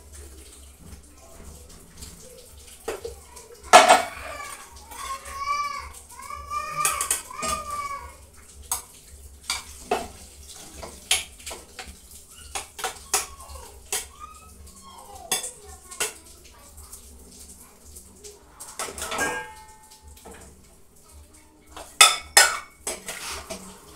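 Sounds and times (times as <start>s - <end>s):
metal spoon clinking on pot: 19.0s - 19.7s
food scraped into pot: 22.9s - 23.8s.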